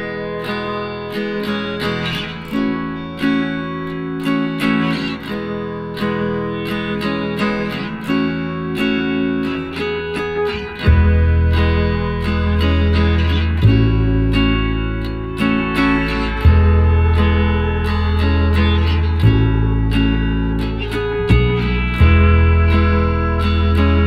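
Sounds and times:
acoustic guitar strumming: 0.0 - 24.0
bass line: 10.8 - 24.0.

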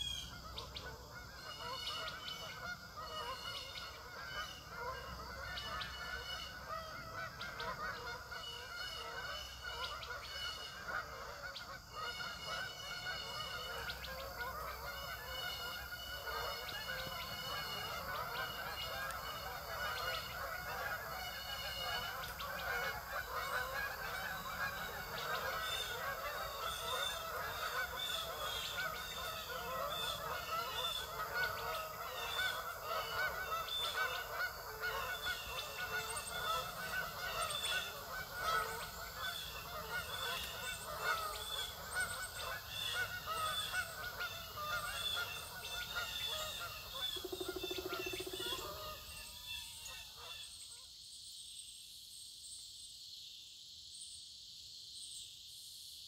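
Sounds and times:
flock of waterfowl calling: 0.0 - 51.0.

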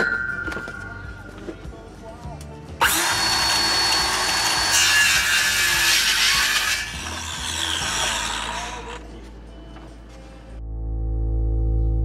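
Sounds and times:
circular saw cutting wood: 2.8 - 9.1.

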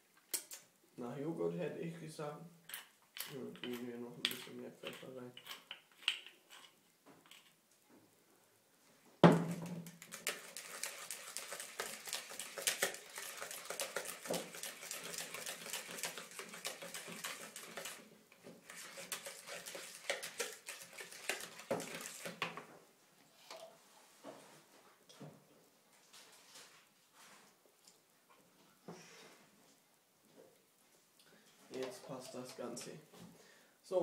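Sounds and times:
whisk scraping a bowl: 2.8 - 7.5, 10.0 - 22.5, 31.8 - 33.0.

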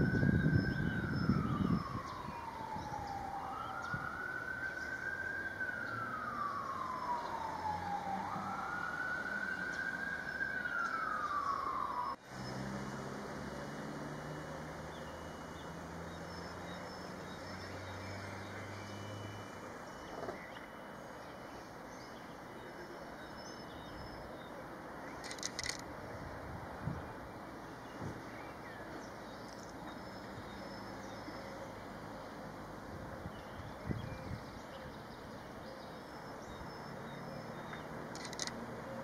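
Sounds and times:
emergency siren wailing: 0.0 - 28.2, 28.8 - 39.0.

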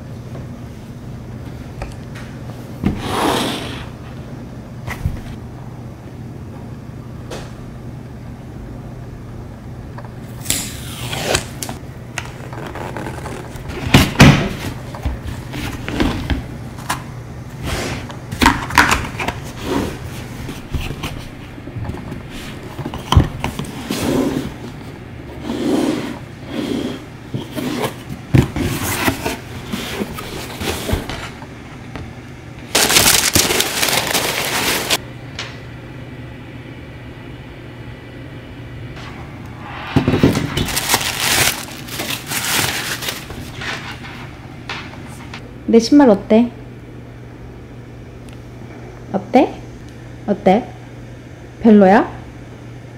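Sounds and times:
packaging rustling: 12.2 - 15.9, 32.7 - 35.0, 40.3 - 44.0.

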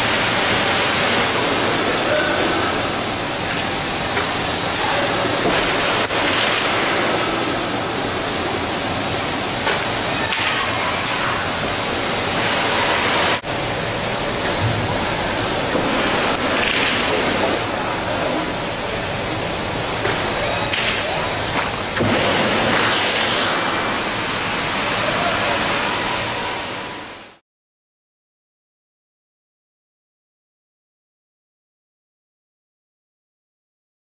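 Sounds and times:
industrial robot arm running: 0.0 - 23.8
conveyors running: 0.0 - 27.4.

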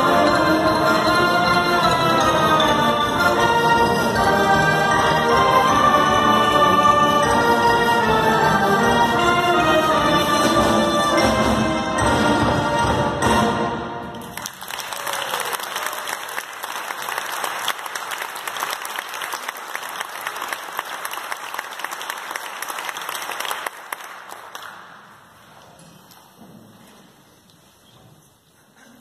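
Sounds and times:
audience applauding: 14.1 - 25.1.

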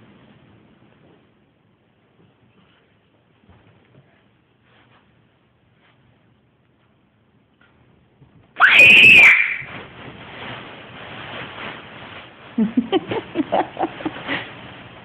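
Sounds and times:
rustling: 2.1 - 15.0
child shrieking: 8.6 - 9.7.

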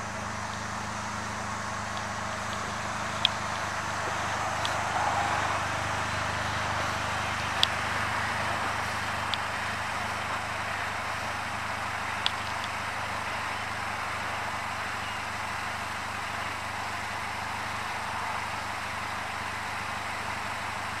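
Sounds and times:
car engine idling: 0.0 - 21.0
sharp clicks: 1.9 - 3.7, 9.1 - 9.5, 12.2 - 12.8.

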